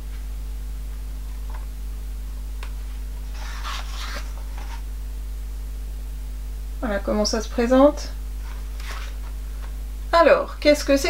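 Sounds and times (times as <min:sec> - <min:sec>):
steady low hum: 0:00.0 - 0:11.0
paper pages rustling: 0:03.2 - 0:04.8, 0:08.4 - 0:09.7.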